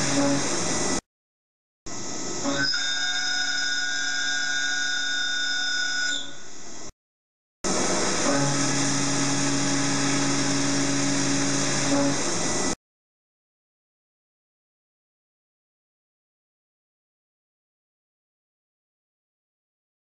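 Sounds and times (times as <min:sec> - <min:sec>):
end mill cutting steel whine: 0:00.0 - 0:01.0, 0:07.7 - 0:12.8.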